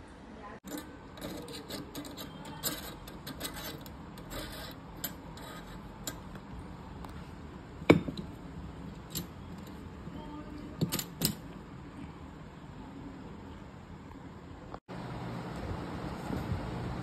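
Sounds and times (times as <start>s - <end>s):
metal spring clinks and knocks: 9.0s - 9.8s, 10.8s - 11.5s.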